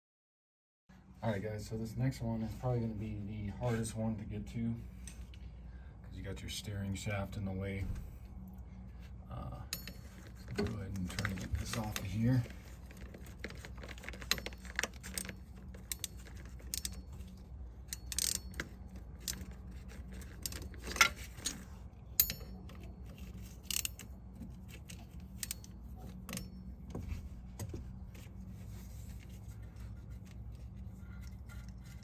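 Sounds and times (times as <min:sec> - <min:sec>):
hand tools clinking on metal: 0:09.7 - 0:12.1.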